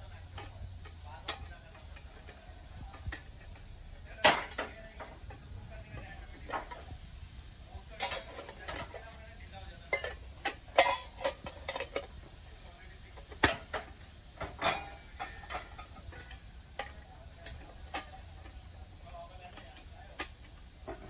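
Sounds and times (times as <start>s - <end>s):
metal kitchenware knocking and clinking: 4.2s - 4.8s, 8.0s - 9.0s, 9.9s - 12.1s, 14.4s - 18.6s.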